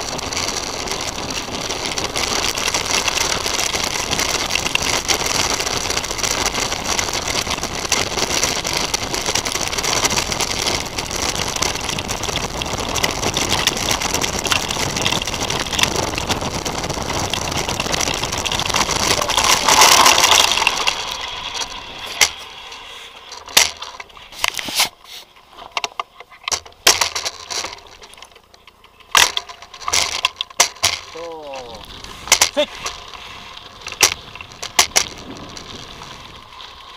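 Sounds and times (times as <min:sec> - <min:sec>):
wind noise on camera: 0:00.0 - 0:22.5, 0:26.4 - 0:36.9
bike tyres on gravel trail: 0:00.0 - 0:36.9.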